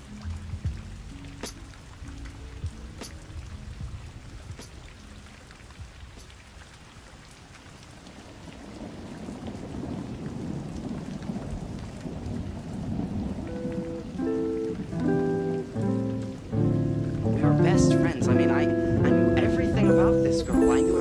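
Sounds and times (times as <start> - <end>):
rain falling: 0.0 - 21.0
low rumble of thunder: 8.1 - 15.3
musical notes: 13.5 - 21.0.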